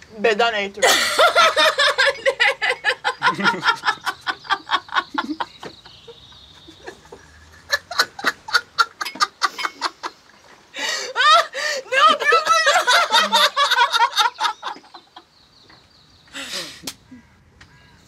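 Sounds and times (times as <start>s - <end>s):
people laughing hard: 0.8s - 10.2s, 10.8s - 15.3s.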